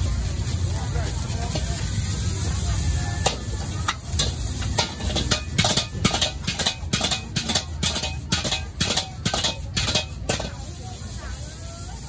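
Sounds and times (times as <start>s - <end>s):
metal ladle scraping a wok: 2.8s - 11.1s.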